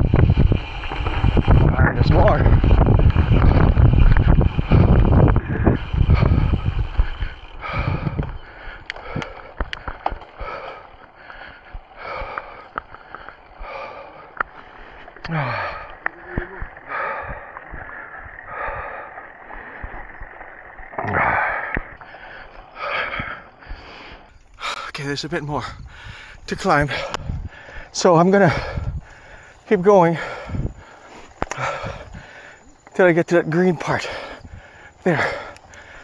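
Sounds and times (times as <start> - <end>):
wind buffeting microphone: 0.0 - 32.9, 33.7 - 36.0
person breathing hard: 3.4 - 20.1, 21.0 - 25.0, 25.7 - 32.8, 34.0 - 36.0.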